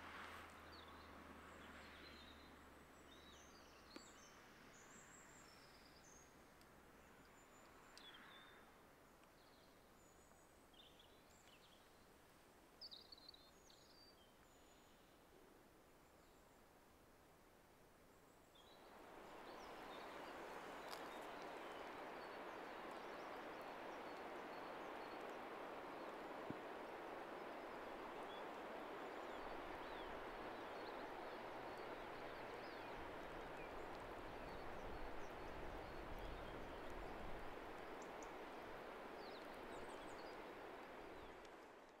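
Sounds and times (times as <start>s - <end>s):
steady rushing noise: 18.8s - 42.0s.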